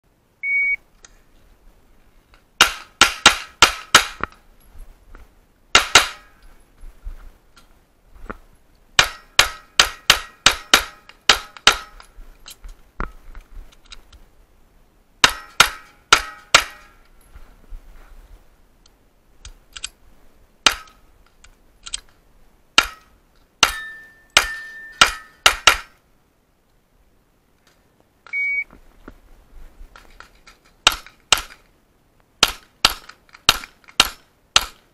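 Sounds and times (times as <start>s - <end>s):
rapid pistol shots: 5.7s - 6.2s, 32.4s - 34.8s.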